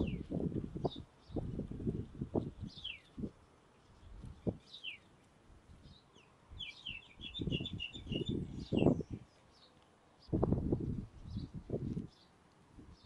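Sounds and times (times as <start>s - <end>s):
small birds calling: 0.0s - 10.4s, 11.2s - 13.0s.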